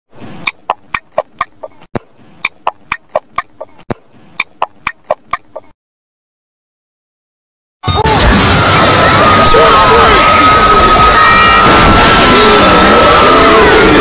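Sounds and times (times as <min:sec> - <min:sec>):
cartoon chomping: 0:00.4 - 0:05.7.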